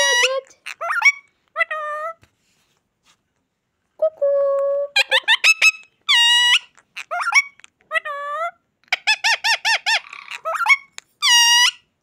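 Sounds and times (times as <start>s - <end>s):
parakeet chattering calls: 0.0s - 1.8s, 5.0s - 11.9s
parakeet squawking: 0.0s - 2.2s, 5.0s - 11.9s.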